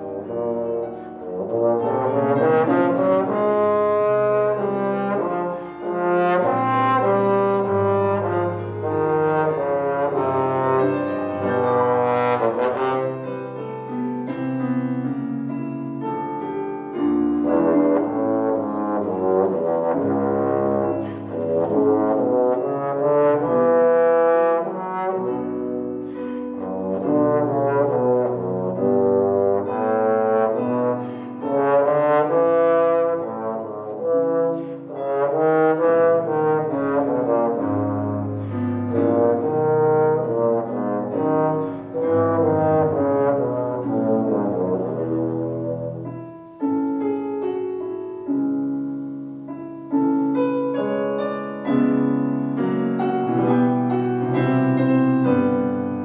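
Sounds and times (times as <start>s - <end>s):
trombone melody: 0.0s - 56.0s
player breathing: 20.9s - 21.4s, 26.0s - 26.6s, 31.0s - 31.4s.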